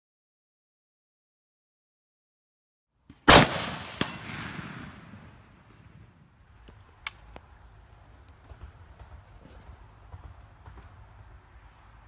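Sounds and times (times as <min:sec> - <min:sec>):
rifle shot with echo: 0:03.1 - 0:06.3.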